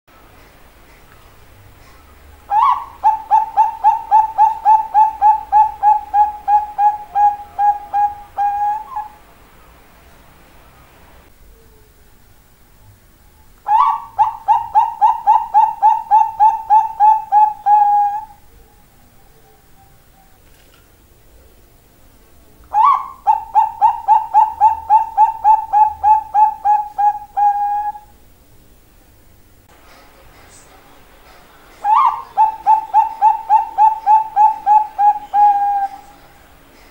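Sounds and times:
dove cooing: 0:01.8 - 0:09.8, 0:13.7 - 0:20.7, 0:22.7 - 0:28.2, 0:31.8 - 0:36.4.

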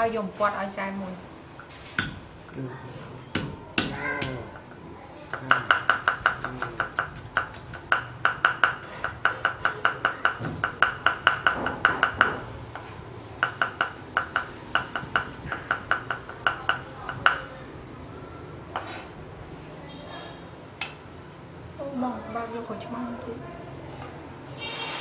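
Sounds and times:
cleaver chopping on wooden block: 0:03.4 - 0:04.4, 0:05.3 - 0:12.4.

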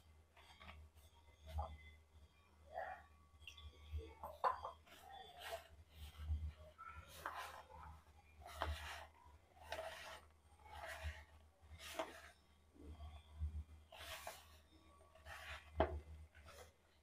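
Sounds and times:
dough squishing and rubbing: 0:04.2 - 0:17.0
hand kneading dough: 0:04.2 - 0:17.0.

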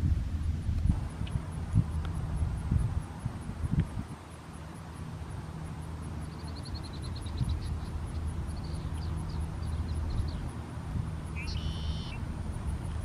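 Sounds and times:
wind rumble on microphone: 0:00.0 - 0:13.0
faint bird trill and chirps: 0:06.2 - 0:10.5, 0:11.3 - 0:12.2.

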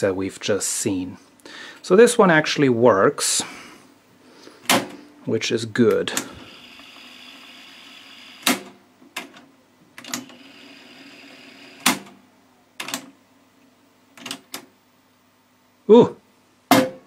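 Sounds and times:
tape mechanism whirring: 0:06.0 - 0:08.7.

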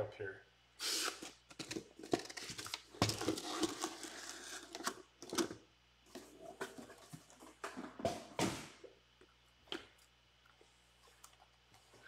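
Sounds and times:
rustling and scraping of boxes: 0:01.0 - 0:05.5, 0:06.1 - 0:08.8.

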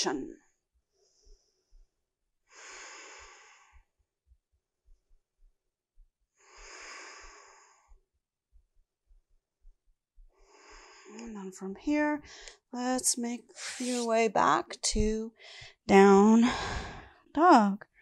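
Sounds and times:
woman breathing: 0:02.5 - 0:03.9, 0:06.4 - 0:08.0, 0:10.4 - 0:11.2, 0:12.2 - 0:12.6, 0:15.4 - 0:15.8, 0:16.4 - 0:17.3.

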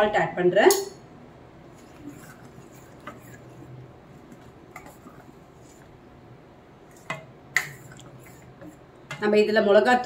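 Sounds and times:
ladle stirring thick stew: 0:01.6 - 0:06.1, 0:06.8 - 0:09.3.

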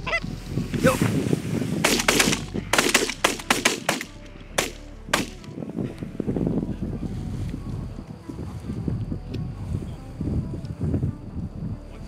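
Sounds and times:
geese honking: 0:00.0 - 0:00.3
shotgun shots: 0:01.8 - 0:05.4.

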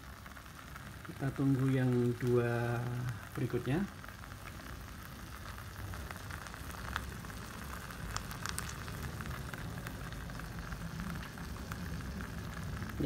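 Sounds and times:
egg sizzling: 0:00.0 - 0:13.0
sharp crackles: 0:00.0 - 0:13.0.

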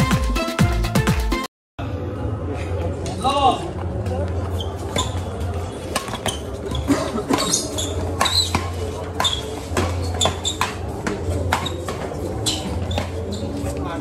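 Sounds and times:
shoes squeaking on court: 0:04.2 - 0:14.0
rackets hitting shuttlecock: 0:05.8 - 0:13.2.

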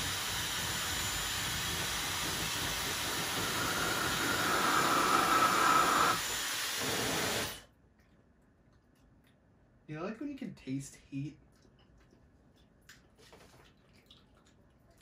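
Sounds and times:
hair dryer blowing air: 0:00.0 - 0:07.6.

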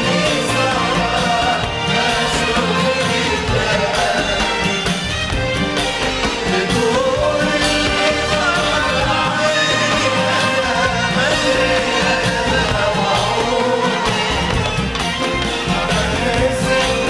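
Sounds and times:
hand drums: 0:00.0 - 0:17.0
person singing: 0:06.0 - 0:17.0.

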